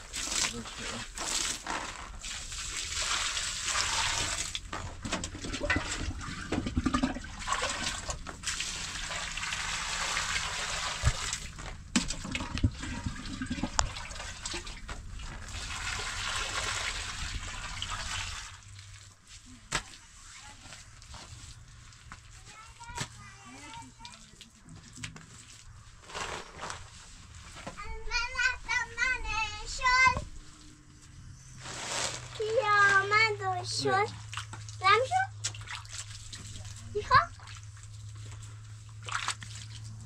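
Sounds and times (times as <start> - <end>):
rushing water: 5.5 - 19.0.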